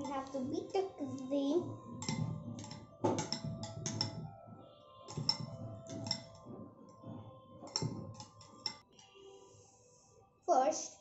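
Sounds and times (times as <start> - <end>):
metal spoon clinking on glass bowl: 0.0 - 0.5, 1.9 - 4.3, 5.1 - 6.5, 7.7 - 9.1
soft stirring: 0.0 - 9.8.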